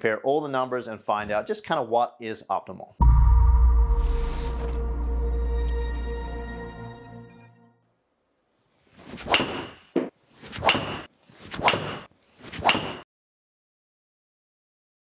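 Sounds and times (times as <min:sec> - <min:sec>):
golf club swishing: 0:08.8 - 0:13.0.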